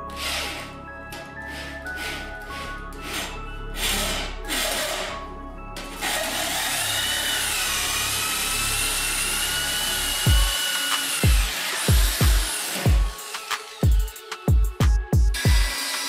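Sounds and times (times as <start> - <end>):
hole saw cutting plywood: 0.0 - 5.2, 5.9 - 13.8, 15.4 - 16.0
deep kick drum: 11.2 - 13.1
electronic music: 11.2 - 15.8.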